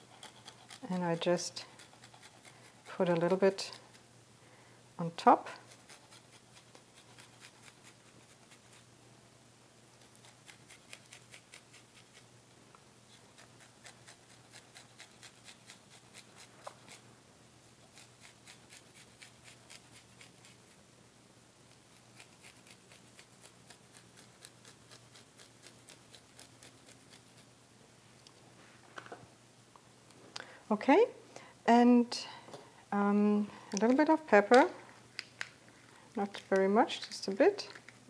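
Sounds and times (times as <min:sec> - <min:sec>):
garlic scraping on a grater: 0:00.0 - 0:04.0, 0:13.2 - 0:17.0.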